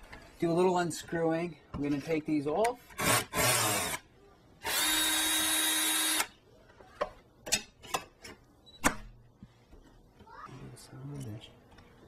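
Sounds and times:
power drill whining: 4.6s - 6.3s.

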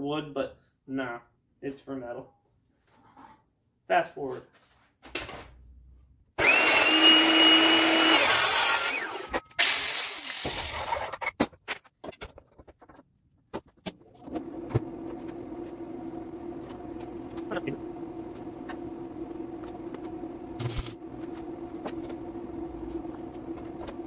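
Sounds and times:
circular saw cutting steel: 6.4s - 11.2s
steady low hum: 14.0s - 24.0s.

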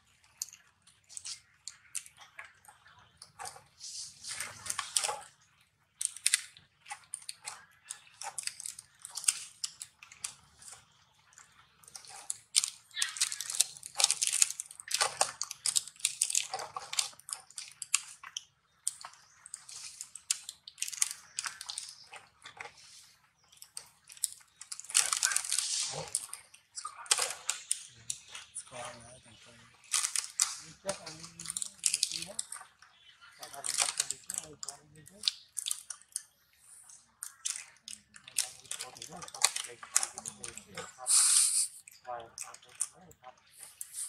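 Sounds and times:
rustling and crackling: 0.0s - 44.0s
faint low hum: 24.6s - 35.4s.

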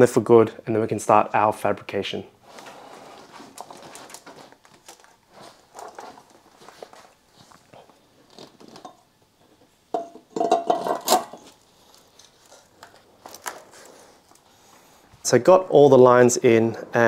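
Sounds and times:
metal on metal clatter: 9.9s - 11.6s
metal clinking and knocking: 9.9s - 12.6s.

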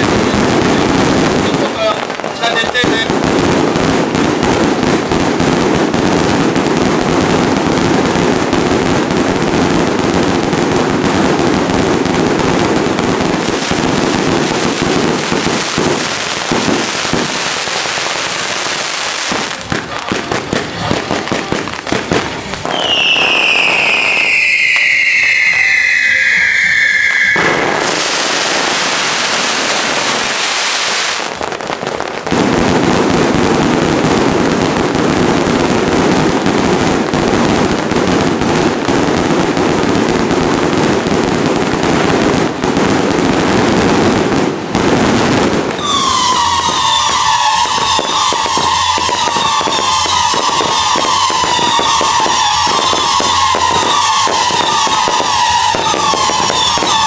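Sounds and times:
firecrackers crackling: 0.0s - 57.0s
falling firework whistle: 22.4s - 31.4s, 45.5s - 57.0s
loud hiss: 22.4s - 31.4s.

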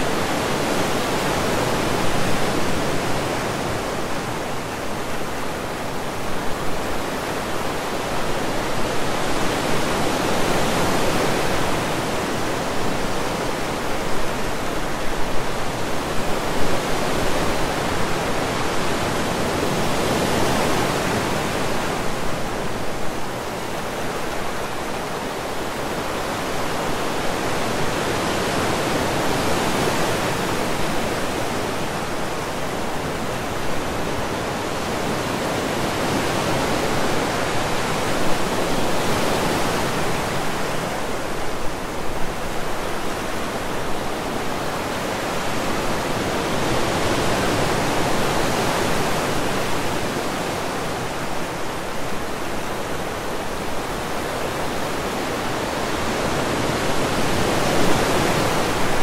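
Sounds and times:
surf waves breaking on beach: 0.0s - 59.0s.

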